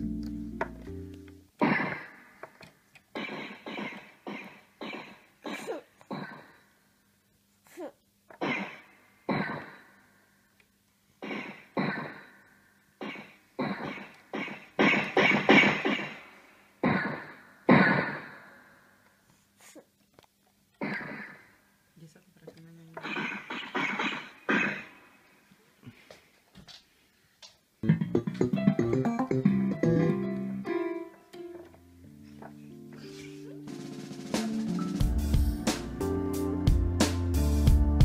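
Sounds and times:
electronic keyboard notes and chords: 0:00.0 - 0:01.5, 0:27.8 - 0:38.0.

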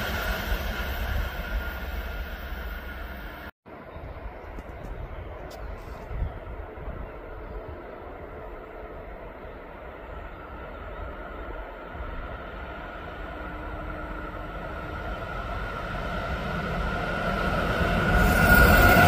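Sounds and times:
steady high whine: 0:00.0 - 0:03.5
freight train rumble and rail noise: 0:00.0 - 0:19.0.

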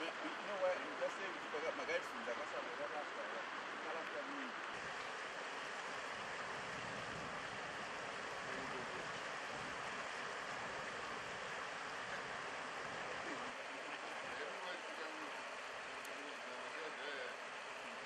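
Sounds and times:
faint voices: 0:00.0 - 0:05.3, 0:06.8 - 0:18.0.

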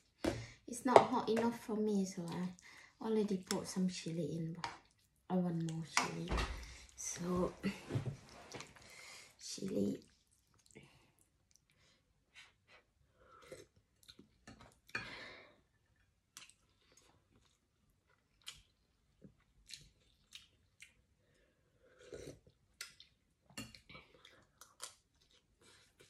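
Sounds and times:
chewing: 0:10.0 - 0:11.9, 0:13.3 - 0:15.0, 0:15.8 - 0:26.0.

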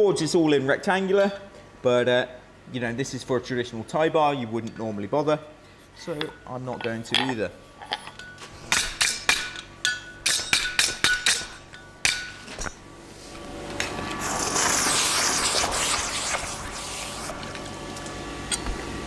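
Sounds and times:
hammer striking steel on anvil: 0:08.2 - 0:12.7
hot steel hissing in water: 0:14.0 - 0:17.4.

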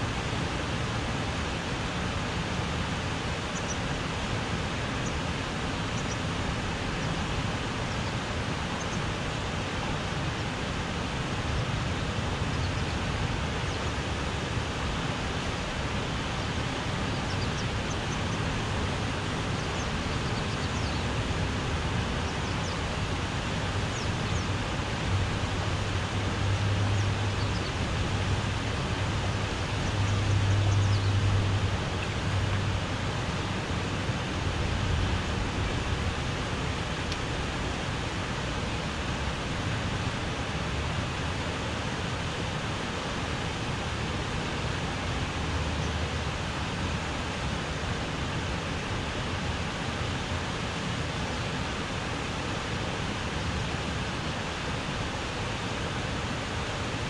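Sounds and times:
rushing outdoor hiss: 0:00.0 - 0:57.0
low rumble of traffic on bridge: 0:11.7 - 0:57.0.

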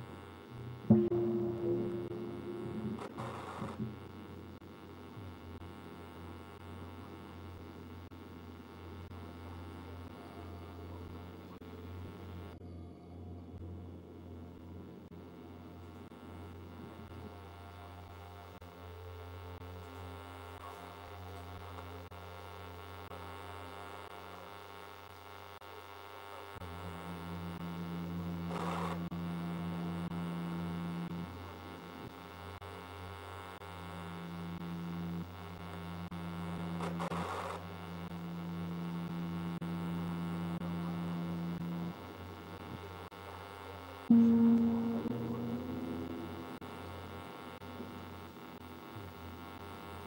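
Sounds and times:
low steady hum: 0:00.0 - 0:20.1, 0:26.6 - 0:32.7, 0:33.4 - 0:50.0
held low tone: 0:00.5 - 0:04.6, 0:27.0 - 0:31.5, 0:38.1 - 0:42.8, 0:44.1 - 0:48.4.

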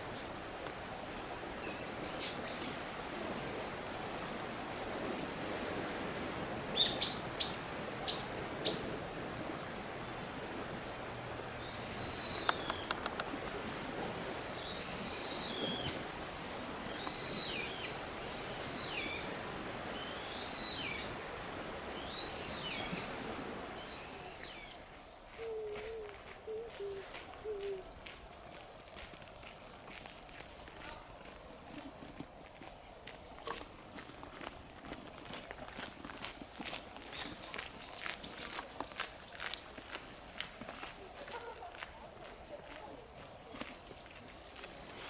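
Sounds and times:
songbirds calling: 0:06.7 - 0:09.0, 0:11.4 - 0:13.4, 0:14.6 - 0:16.0, 0:16.8 - 0:21.2, 0:37.0 - 0:39.7.

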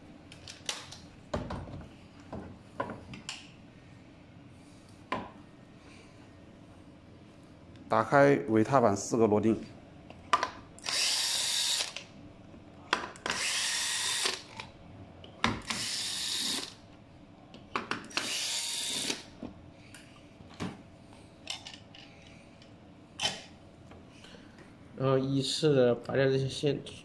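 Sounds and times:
cordless drill driving screws: 0:10.8 - 0:12.0, 0:13.3 - 0:14.4, 0:15.6 - 0:16.8, 0:18.1 - 0:19.2.

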